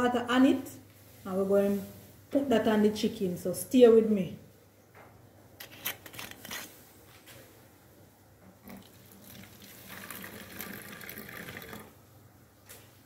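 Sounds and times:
liquid trickling into bottle: 8.6 - 11.9.

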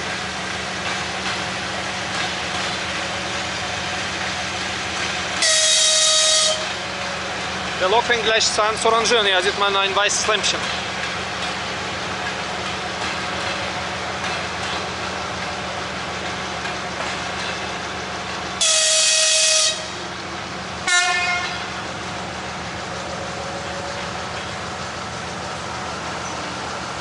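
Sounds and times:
locomotive horn: 5.4 - 6.8, 18.6 - 20.1, 20.8 - 21.8.

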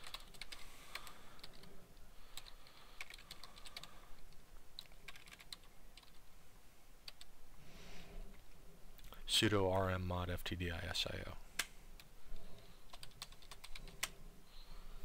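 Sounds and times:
keyboard typing clicks: 4.8 - 6.2.

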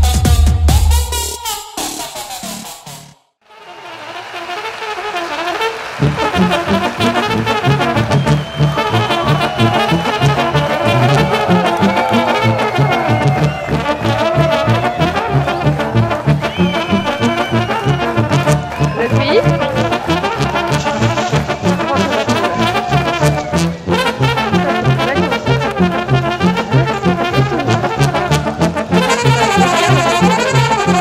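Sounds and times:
pulsing bass beat: 0.0 - 1.6, 6.1 - 31.0
brass music: 0.0 - 31.0.

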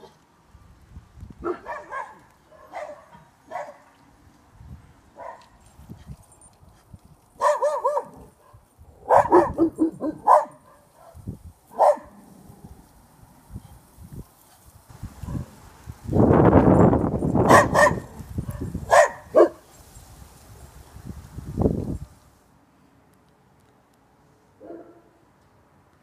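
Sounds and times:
dogs barking: 1.4 - 3.9, 5.2 - 5.5, 7.4 - 12.2, 15.2 - 15.6, 17.4 - 19.6.

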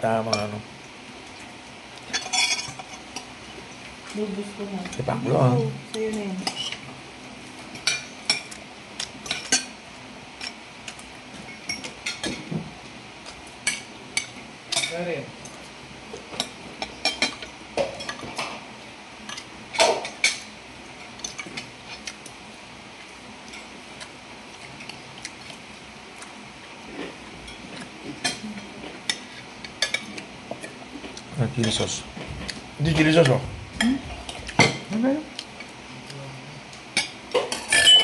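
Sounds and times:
cutlery clinking on a plate: 2.1 - 3.3, 37.0 - 38.0.

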